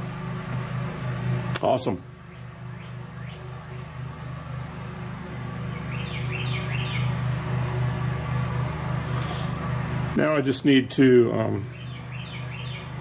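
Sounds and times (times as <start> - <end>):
low mechanical hum: 0.0 - 13.0
high bird chirps: 2.2 - 3.5, 5.7 - 7.2, 11.7 - 13.0.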